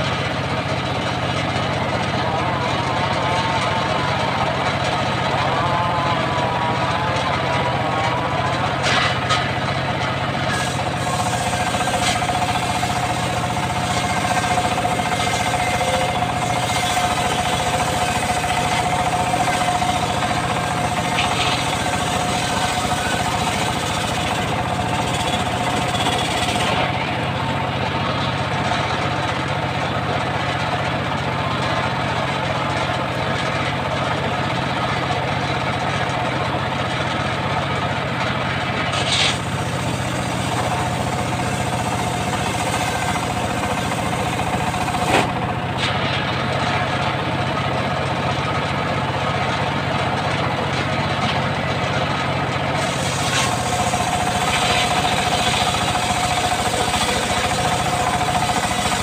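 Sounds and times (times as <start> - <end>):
saw blade cutting log: 0.0 - 29.5, 38.8 - 46.4, 52.7 - 59.0
sawmill engine running: 0.0 - 59.0.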